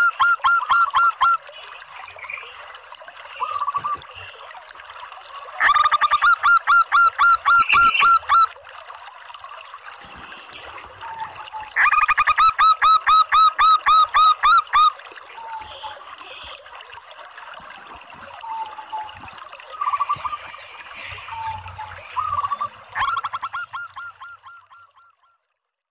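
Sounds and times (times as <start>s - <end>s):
dove calling: 5.6s - 8.5s, 19.8s - 25.0s.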